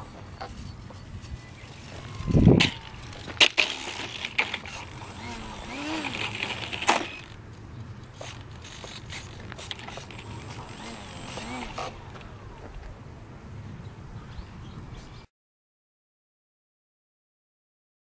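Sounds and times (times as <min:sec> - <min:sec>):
outdoor background: 0:00.0 - 0:15.3
gravel crunches: 0:00.2 - 0:13.0
model plane tipping on gravel: 0:01.7 - 0:07.4, 0:08.1 - 0:12.6.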